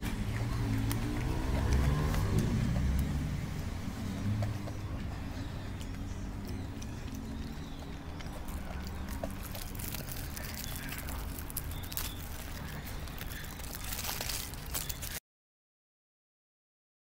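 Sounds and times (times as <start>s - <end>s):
aluminium foil crinkling: 8.1s - 15.2s.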